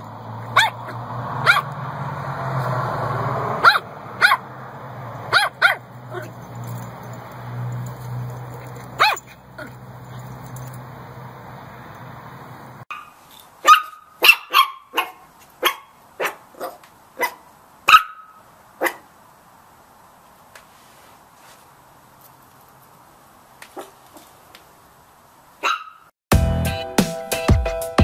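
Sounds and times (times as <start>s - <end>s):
puppies yapping: 0.0s - 1.8s, 3.5s - 11.0s, 12.9s - 19.0s, 25.6s - 26.1s.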